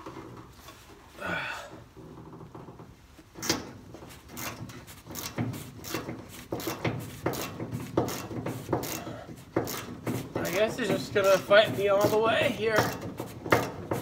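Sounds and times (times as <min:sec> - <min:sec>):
wrench clicking on bolt: 0:04.3 - 0:10.6.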